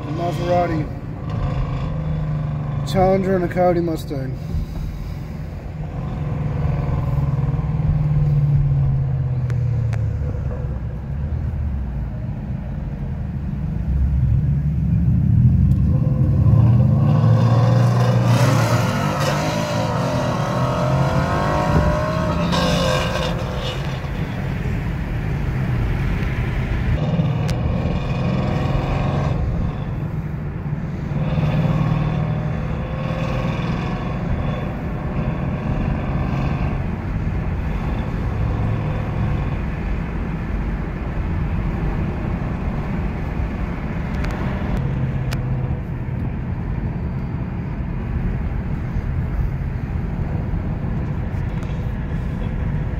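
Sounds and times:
car engines accelerating: 0.0s - 52.9s
road noise: 0.0s - 52.9s.

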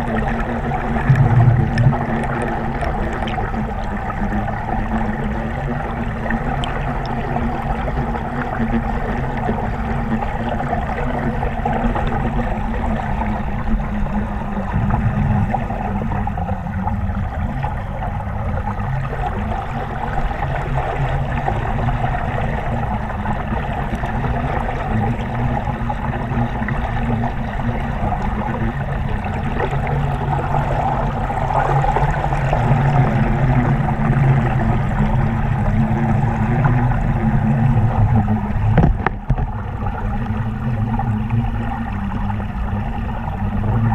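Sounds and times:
muffled underwater rush of water: 0.0s - 43.9s.

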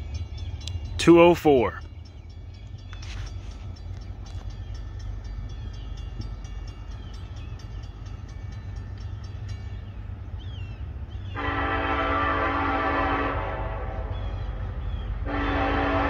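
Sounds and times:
locomotive air horn: 11.3s - 14.6s, 15.2s - 16.0s.

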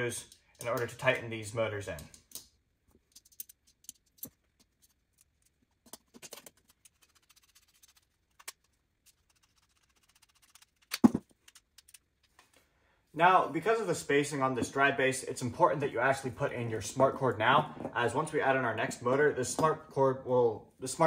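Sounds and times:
small metal parts clicking and rattling: 1.9s - 8.0s.

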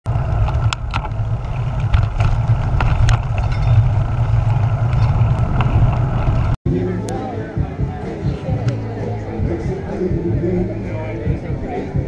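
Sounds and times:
road noise: 0.0s - 12.0s
wind buffeting microphone: 0.1s - 6.6s
bicycle clicks and rattles: 0.2s - 6.5s.

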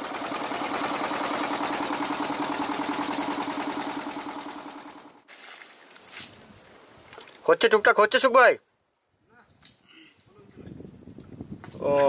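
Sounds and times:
boat engine running: 0.0s - 5.2s.

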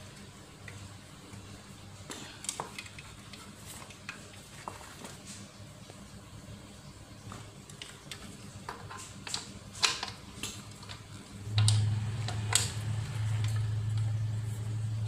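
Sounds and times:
cable connectors clicking: 2.4s - 4.4s, 7.7s - 14.1s.

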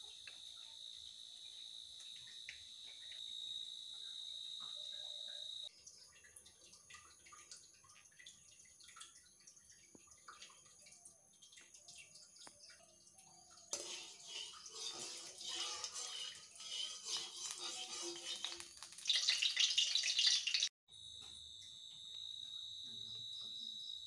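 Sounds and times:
hot oil ticking and crackling: 5.6s - 20.7s
oil sizzling loudly: 13.7s - 20.7s.

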